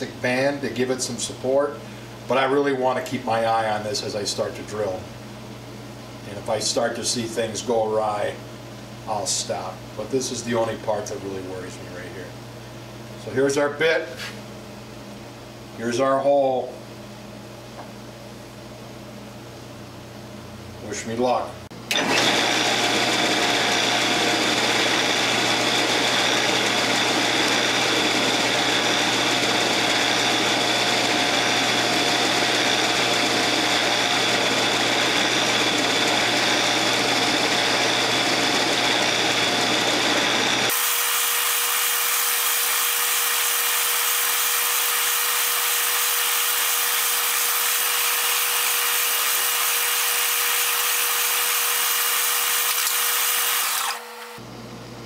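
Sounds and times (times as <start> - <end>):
drill bit boring into wood: 21.9 - 54.4
boring machine running: 21.9 - 54.5.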